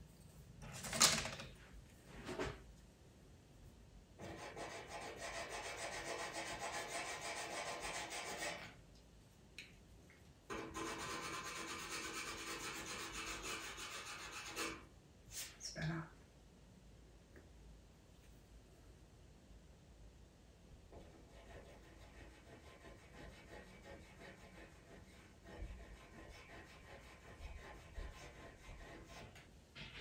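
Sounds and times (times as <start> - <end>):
pencil scratching on paper: 4.2 - 8.7, 10.5 - 14.9, 21.0 - 29.4.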